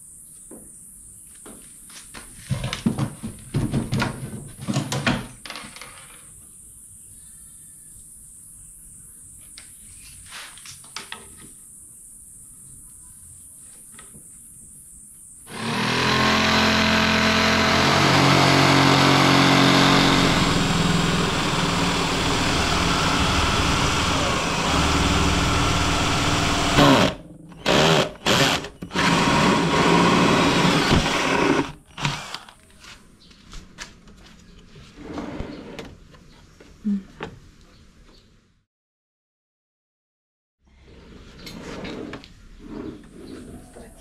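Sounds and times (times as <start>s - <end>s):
electric drill cutting wood: 15.5s - 32.6s.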